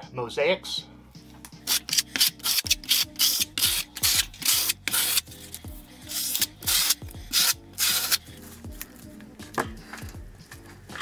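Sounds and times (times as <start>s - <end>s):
trowel scraping mortar: 1.7s - 8.3s.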